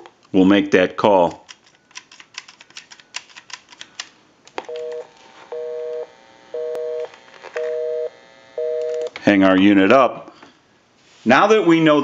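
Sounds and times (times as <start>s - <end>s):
phone buttons clicking: 1.5s - 5.1s, 6.6s - 7.9s, 8.7s - 9.2s
telephone busy signal: 4.7s - 9.2s.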